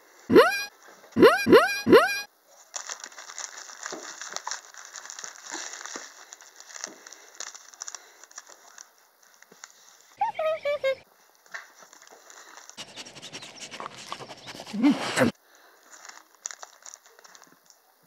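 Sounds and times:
squeaky rising calls: 0.3s - 2.3s
cellophane wrappers crinkling: 2.6s - 10.1s, 15.8s - 17.8s.

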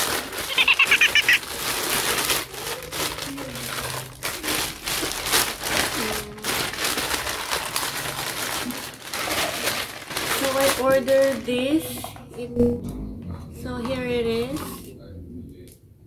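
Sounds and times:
plastic bags crinkling: 0.0s - 12.0s.

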